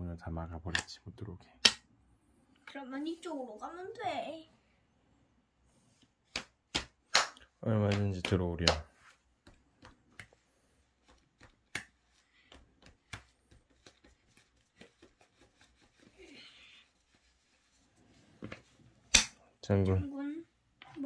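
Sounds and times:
soft rustle: 8.9s - 19.0s.

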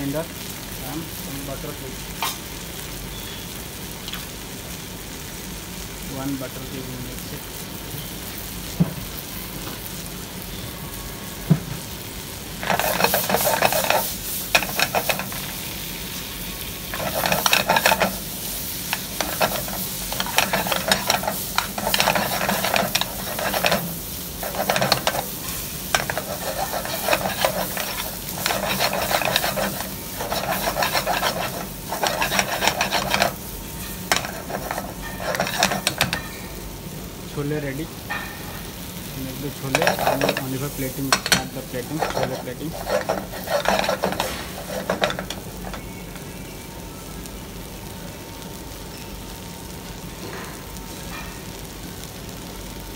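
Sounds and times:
curry sizzling: 0.0s - 52.9s
spoon scraping a pan: 12.6s - 15.6s, 16.9s - 36.6s, 39.6s - 46.0s.

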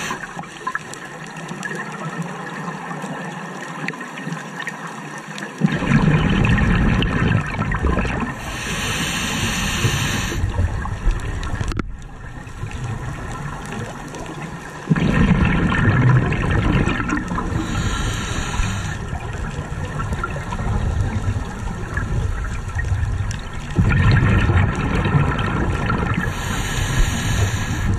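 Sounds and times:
air hissing through regulator: 0.0s - 0.4s, 8.4s - 10.6s, 17.6s - 19.0s, 26.3s - 27.9s
exhaled bubbles rumbling: 5.6s - 27.9s.

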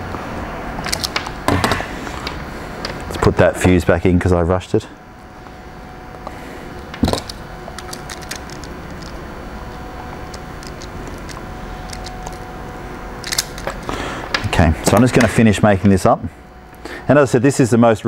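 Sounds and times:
steady low hum: 0.0s - 18.0s
wire crimper clicking: 0.8s - 1.6s, 6.9s - 12.5s, 13.2s - 15.3s
handling noise: 6.2s - 16.0s.

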